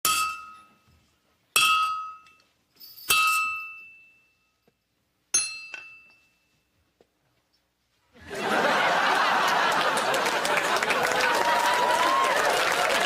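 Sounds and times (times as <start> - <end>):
hammer striking horseshoe on anvil: 0.0 - 0.8, 1.5 - 2.4, 3.0 - 4.1, 5.3 - 6.3.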